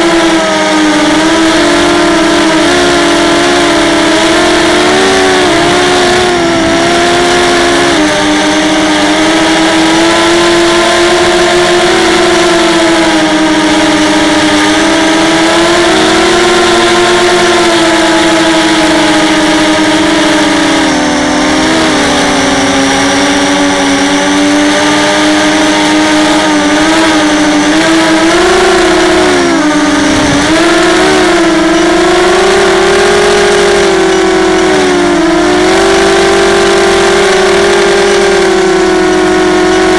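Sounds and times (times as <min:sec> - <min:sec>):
quadcopter motors whining: 0:00.0 - 0:39.9.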